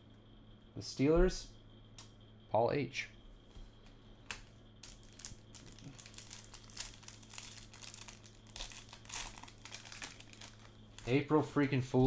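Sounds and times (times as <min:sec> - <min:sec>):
faint steady low hum: 0:00.0 - 0:12.0
plastic wrapper crinkling: 0:04.8 - 0:11.1.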